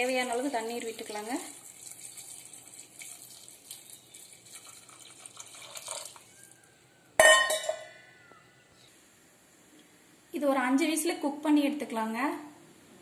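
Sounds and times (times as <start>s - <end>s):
water trickling into a pot: 0.0s - 6.7s.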